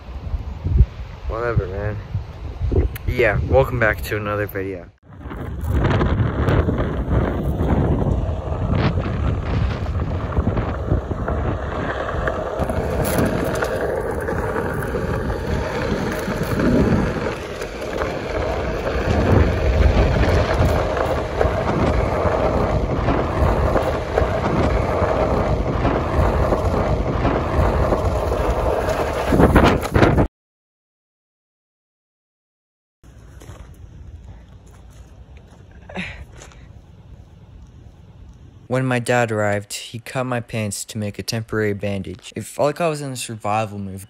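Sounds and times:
wind on microphone: 0:00.0 - 0:04.4, 0:05.0 - 0:30.3
tyre rolling over dirt: 0:05.2 - 0:30.2.

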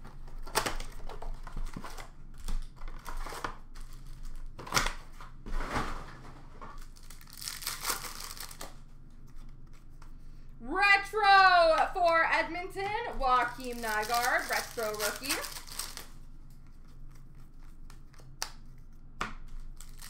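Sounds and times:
card pack wrappers crinkling: 0:06.7 - 0:10.0, 0:12.8 - 0:16.2, 0:19.5 - 0:20.0.

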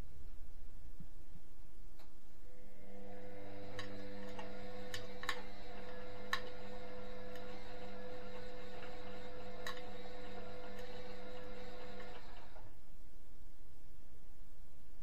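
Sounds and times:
washing machine humming: 0:02.4 - 0:12.8.

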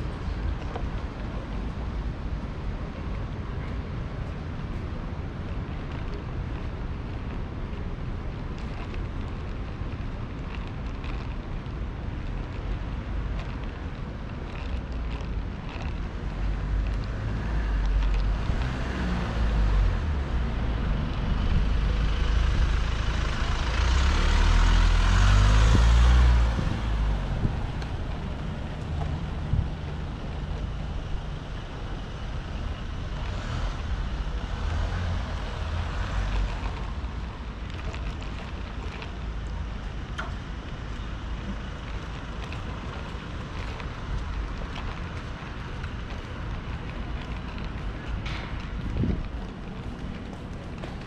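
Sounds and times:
low rumble of traffic: 0:00.0 - 0:51.0
vehicle passing close by: 0:21.9 - 0:27.8.

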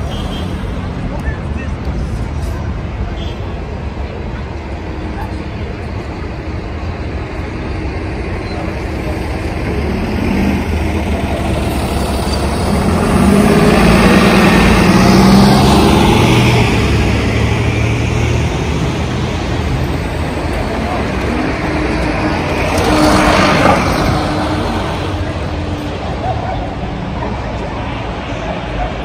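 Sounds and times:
vehicle engine passing: 0:09.3 - 0:26.3.

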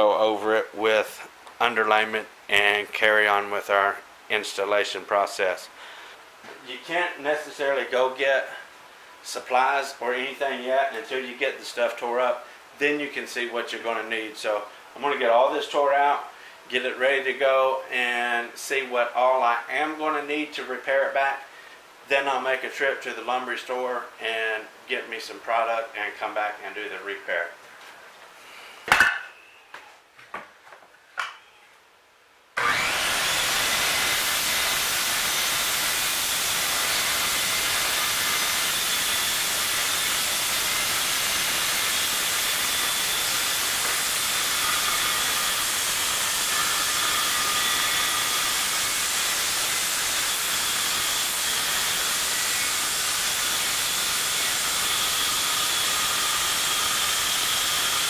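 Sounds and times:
circular saw cutting board: 0:32.6 - 0:58.0.

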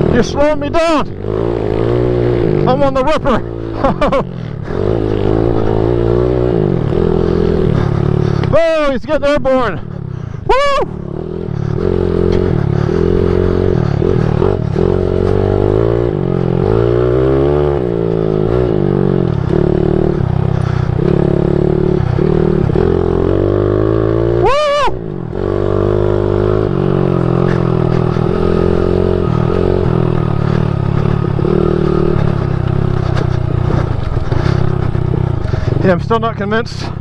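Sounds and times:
pit bike engine revving: 0:00.0 - 0:37.0.

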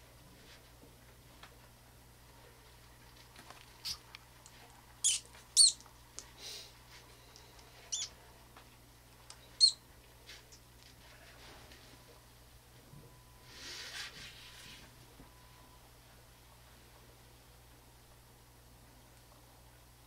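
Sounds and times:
mouse squeaking: 0:03.8 - 0:04.0, 0:05.0 - 0:05.8, 0:07.9 - 0:08.2, 0:09.4 - 0:09.8.

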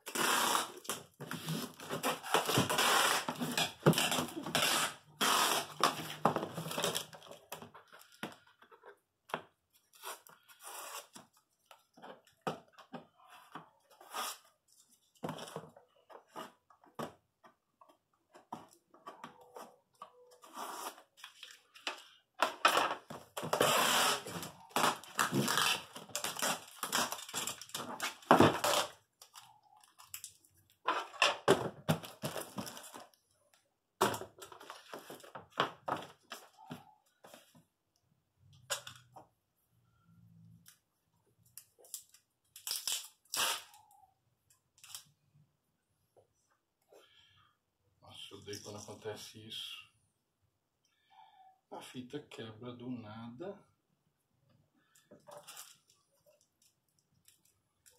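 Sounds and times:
packing tape unrolling: 0:00.0 - 0:07.3, 0:09.9 - 0:11.2, 0:22.7 - 0:30.4, 0:41.6 - 0:44.0.

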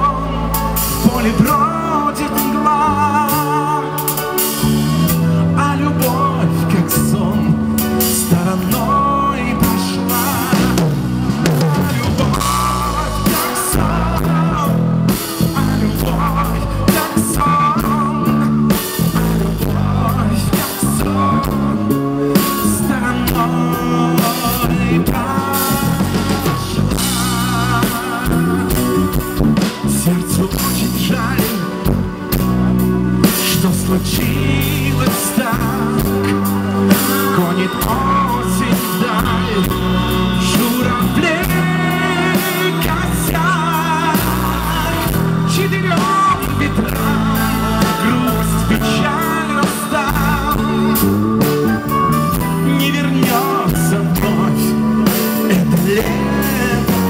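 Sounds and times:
live pop rock band: 0:00.0 - 0:57.0.

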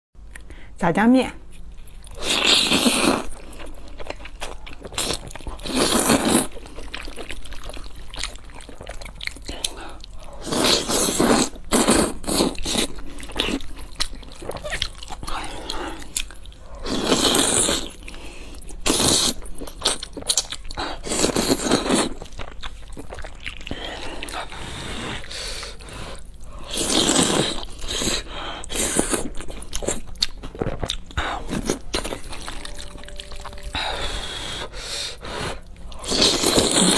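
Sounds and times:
chewing: 0:01.5 - 0:34.1
person slurping noodles: 0:02.2 - 0:03.3, 0:05.0 - 0:06.5, 0:10.4 - 0:13.6, 0:16.8 - 0:18.0, 0:26.6 - 0:29.2, 0:33.8 - 0:36.9.

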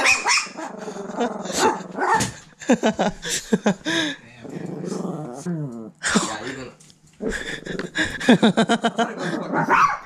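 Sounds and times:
dog yips and barks: 0:00.0 - 0:00.6
small dog growling: 0:00.6 - 0:02.2, 0:04.4 - 0:06.4.

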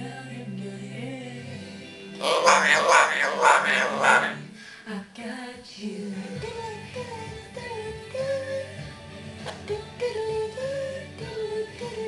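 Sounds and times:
song with singing voice: 0:00.0 - 0:12.0.

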